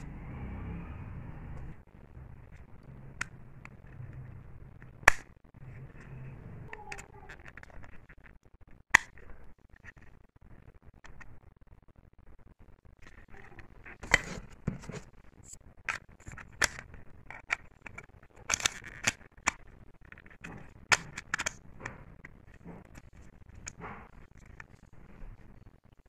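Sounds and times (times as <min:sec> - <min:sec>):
plastic puzzle pieces clicking: 0:06.7 - 0:08.0, 0:15.8 - 0:25.5.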